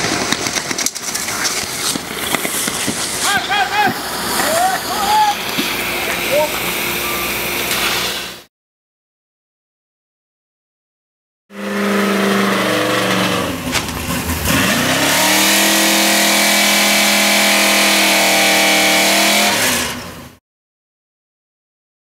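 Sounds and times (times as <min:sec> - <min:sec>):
engine running hard: 0:00.0 - 0:08.4, 0:11.5 - 0:20.4
water spraying hiss: 0:01.1 - 0:06.7.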